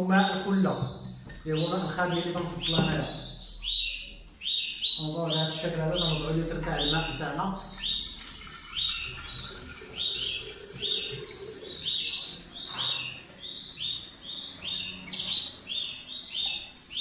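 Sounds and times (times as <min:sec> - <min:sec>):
songbird chirping: 0:00.0 - 0:17.0
water trickling into glass jar: 0:06.8 - 0:17.0.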